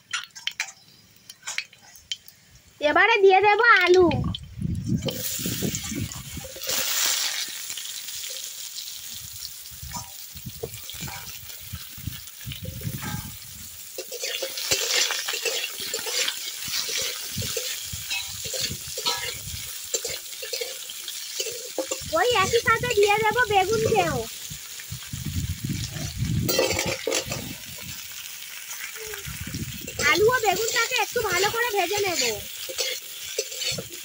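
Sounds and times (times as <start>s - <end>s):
potato sticks sizzling in oil: 0.0s - 34.0s
metal spatula scraping pan: 12.6s - 22.1s, 25.8s - 27.6s, 29.9s - 34.0s.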